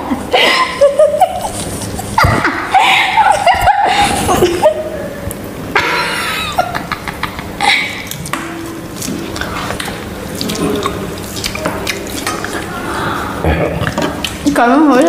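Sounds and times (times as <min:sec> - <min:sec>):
mouths chewing: 0:07.1 - 0:15.0
hands squishing rice: 0:07.9 - 0:15.0.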